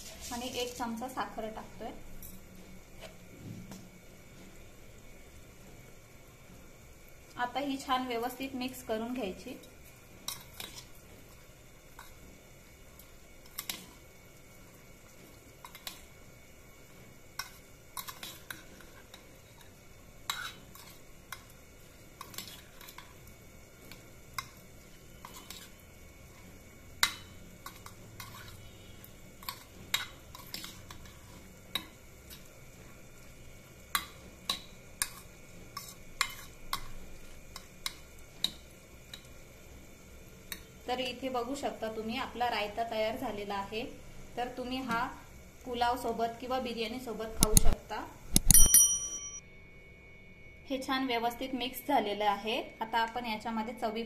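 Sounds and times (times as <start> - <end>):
spoon stirring wet mix: 17.3 - 32.6
spoon clinking against bowl: 48.4 - 49.4.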